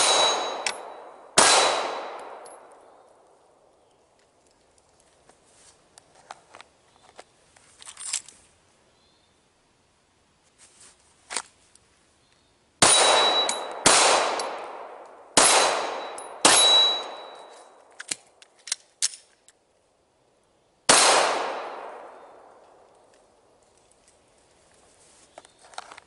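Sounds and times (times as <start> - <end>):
pistol shots echoing: 0.0 - 2.8, 12.8 - 17.4, 20.9 - 22.6.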